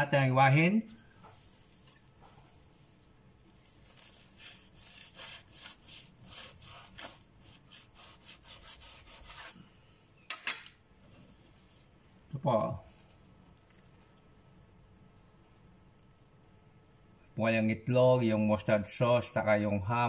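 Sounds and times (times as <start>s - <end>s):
knife sawing through sandwich: 3.8s - 9.6s.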